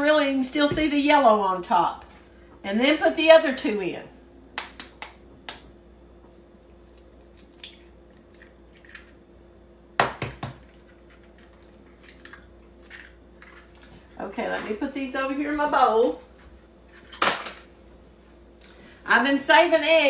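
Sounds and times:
eggshells cracking: 6.8s - 9.2s.

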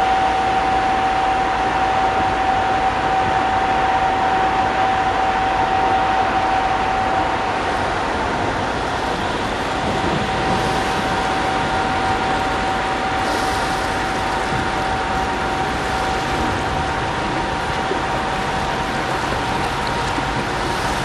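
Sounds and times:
ship engines and ventilation drone: 0.0s - 21.0s.

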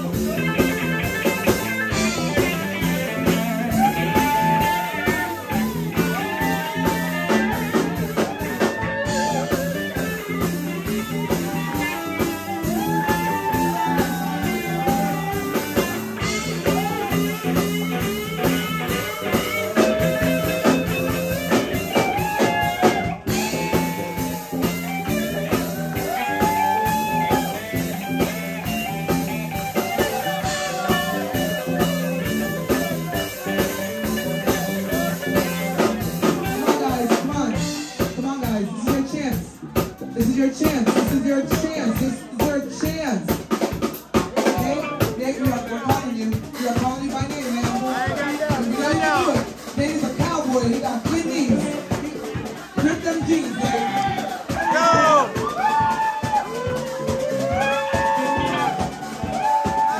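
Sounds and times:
bending lead guitar line: 0.0s - 43.8s
live rock band playing: 0.0s - 59.9s.

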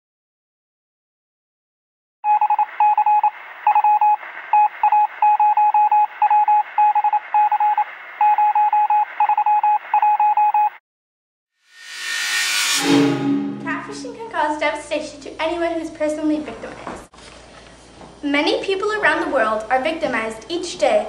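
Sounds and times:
morse code beeping: 2.2s - 10.8s
noisy whoosh: 11.7s - 14.6s.

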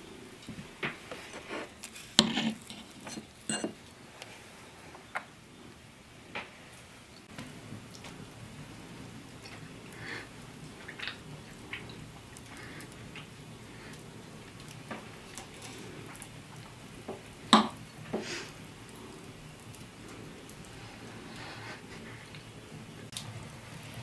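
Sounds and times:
wood fire crackling: 0.0s - 24.0s
fork clinking on metal plate: 2.2s - 3.8s.

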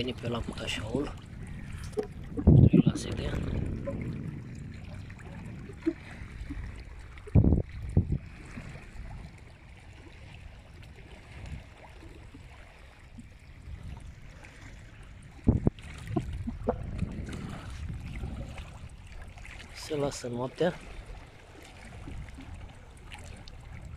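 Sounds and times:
loud low wind buffets: 0.0s - 19.8s, 21.8s - 23.9s
small waves lapping on rocks: 0.0s - 23.9s
wind rumbling on microphone: 0.0s - 23.9s.

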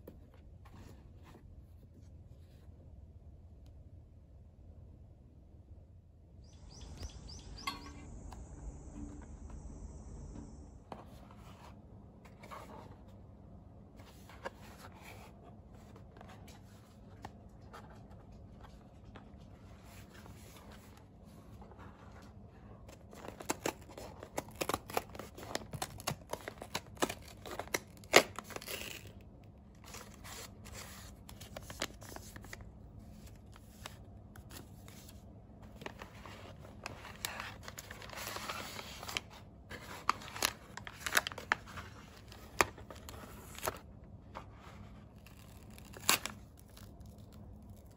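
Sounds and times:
paper packaging rustling and tearing: 21.8s - 47.9s.

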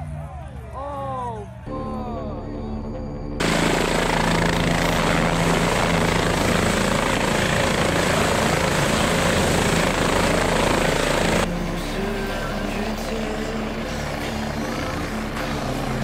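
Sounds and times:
helicopter hovering: 0.0s - 16.0s.

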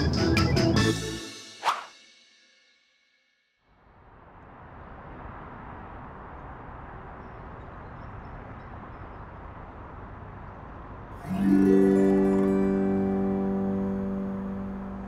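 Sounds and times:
background music: 0.0s - 1.8s, 11.2s - 15.0s
road traffic rushing: 3.8s - 15.0s.

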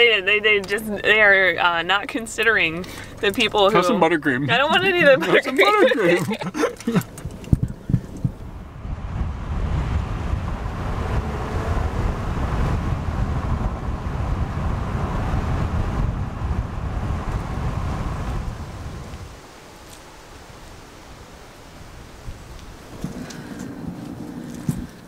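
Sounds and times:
wind buffeting microphone: 6.2s - 25.0s.

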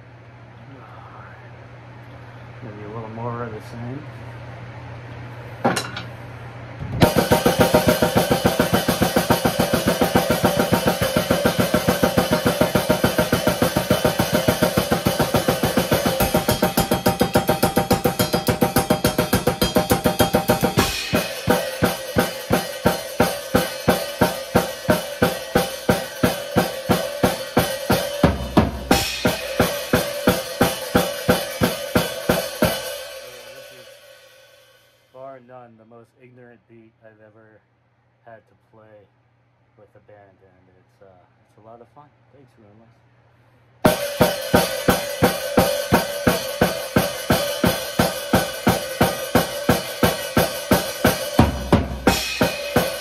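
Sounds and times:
drum kit beat: 7.0s - 34.8s, 43.8s - 53.0s
cymbals ringing: 7.0s - 35.1s, 43.8s - 53.0s.

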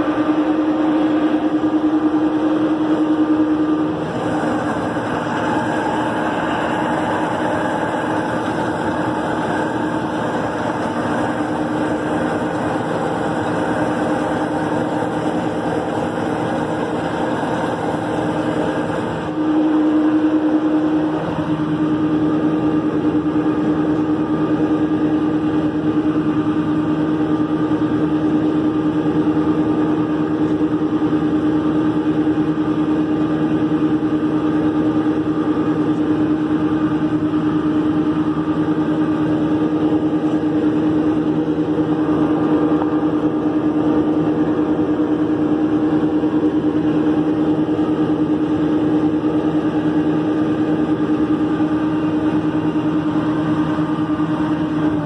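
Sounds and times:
tractor engine running under load: 0.0s - 55.0s.

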